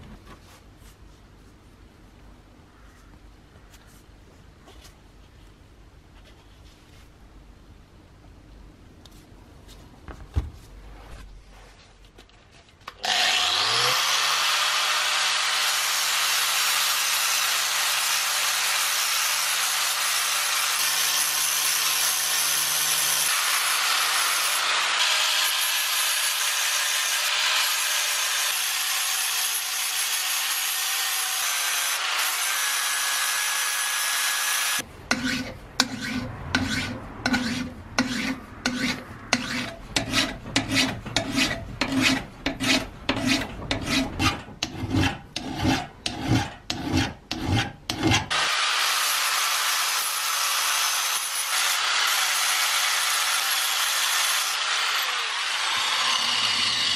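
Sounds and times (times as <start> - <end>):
angle grinder grinding steel: 13.0 - 56.9
file rasping on steel: 13.0 - 56.9.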